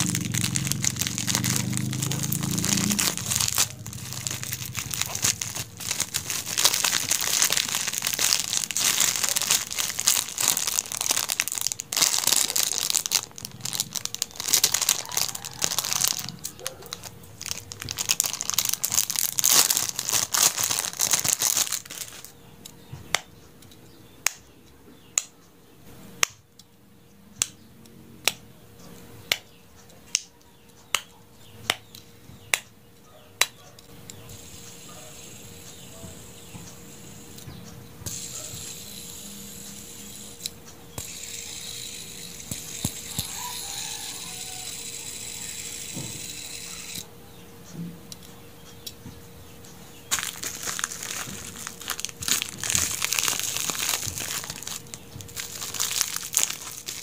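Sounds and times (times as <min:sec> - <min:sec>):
plastic packaging crinkling: 0:00.0 - 0:22.4, 0:50.1 - 0:57.0.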